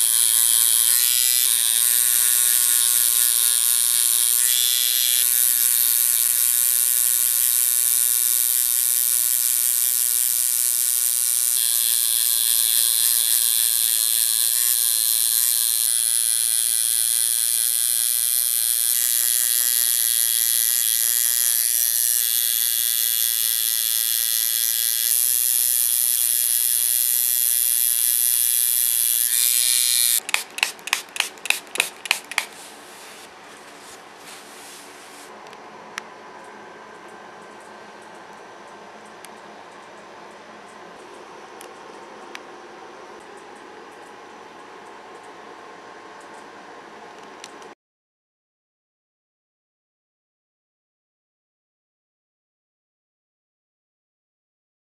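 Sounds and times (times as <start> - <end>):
tattoo machine buzzing: 0.0 - 35.3
short sharp bursts: 29.3 - 33.3.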